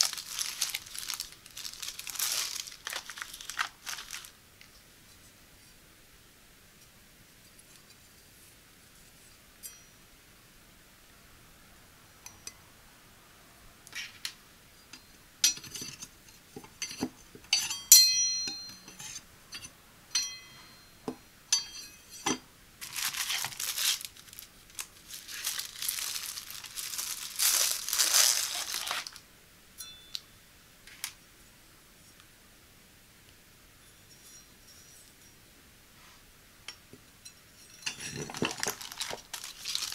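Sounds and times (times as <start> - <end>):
plastic packaging crinkling: 0.0 - 4.4, 22.8 - 29.2, 38.0 - 39.9
metal knives clinking: 9.6 - 10.0, 16.7 - 22.4.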